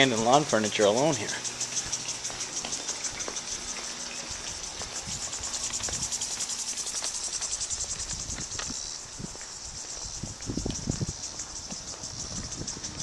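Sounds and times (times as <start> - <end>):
insects chirring: 0.0 - 13.0.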